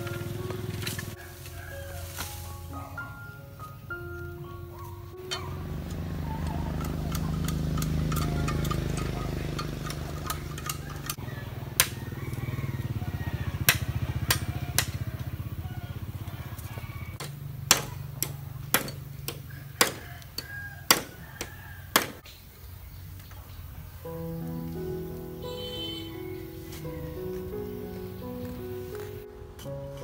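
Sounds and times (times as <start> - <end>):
small engine droning: 4.5 - 19.8
blade chopping bamboo: 9.8 - 12.1, 13.6 - 15.1, 17.2 - 22.2.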